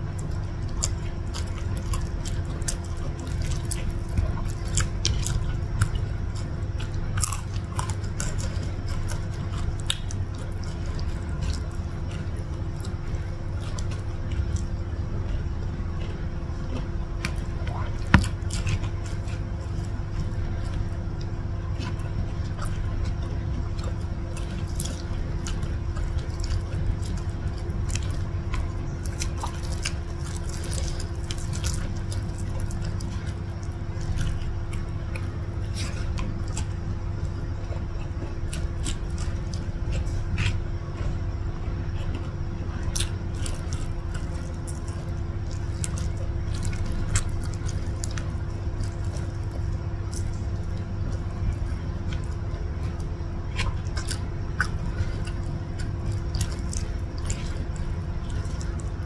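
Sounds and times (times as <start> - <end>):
chewing with wet mouth clicks: 0.0 - 59.0
steady low hum: 0.0 - 59.0.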